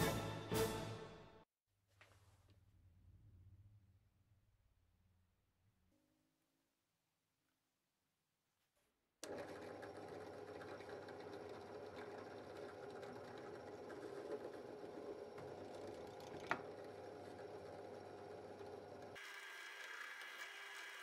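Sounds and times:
drill press motor hum: 9.2s - 21.0s.

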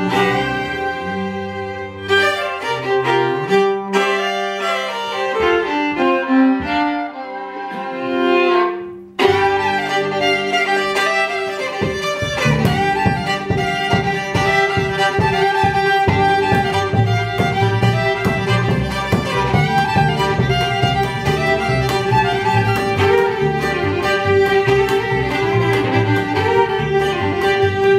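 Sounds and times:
fiddles playing fast tune: 0.0s - 27.9s
upright bass plucking: 11.6s - 27.9s.

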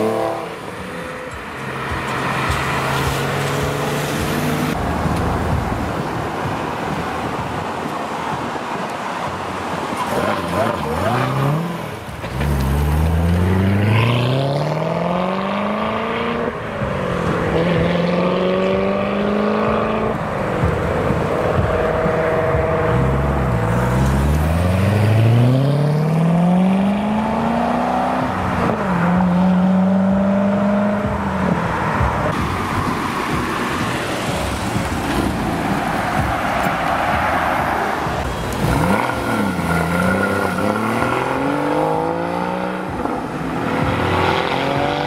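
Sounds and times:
traffic noise: 0.0s - 45.0s
sports car engine accelerating: 10.2s - 36.3s, 38.3s - 45.0s.

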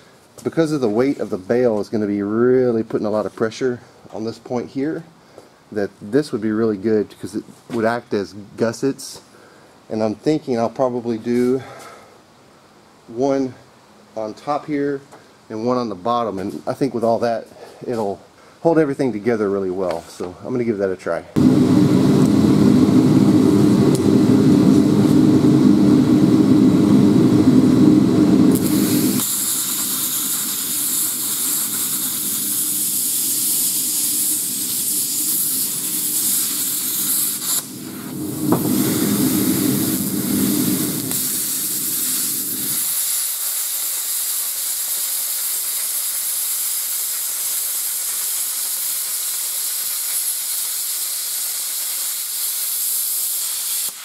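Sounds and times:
low hum: 21.4s - 29.2s, 37.7s - 42.8s
plasma cutter arc hissing: 28.5s - 54.0s.

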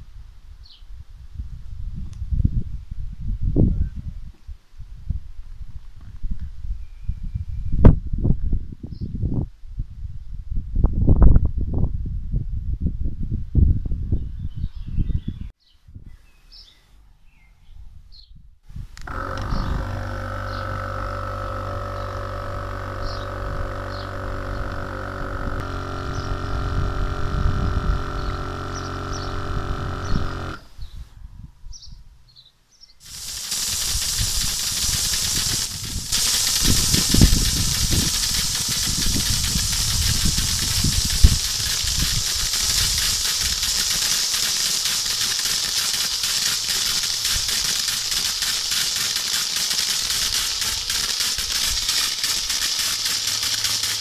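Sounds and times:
electric motor humming: 19.0s - 30.8s, 33.0s - 54.0s
water spray hissing: 19.0s - 30.8s, 33.0s - 54.0s.

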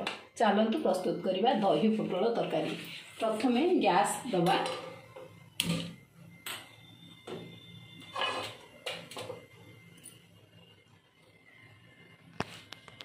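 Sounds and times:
gas burner lighting: 3.5s - 10.2s.

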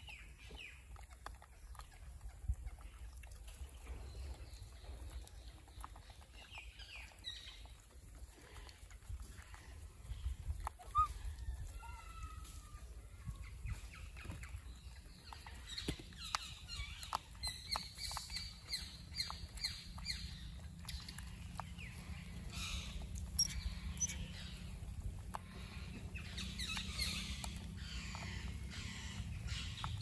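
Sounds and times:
high animal squeaks and chirps: 10.6s - 12.8s, 22.5s - 24.8s.

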